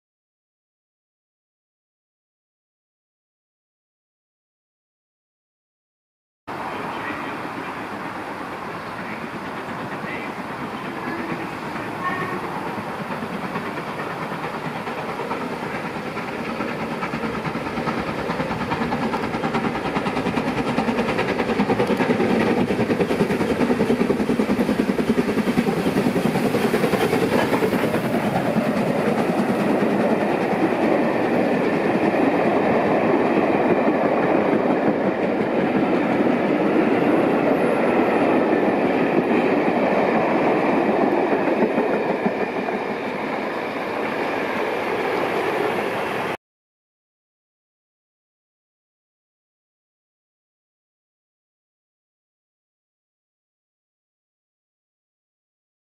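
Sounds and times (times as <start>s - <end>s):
steam locomotive passing: 6.5s - 46.4s.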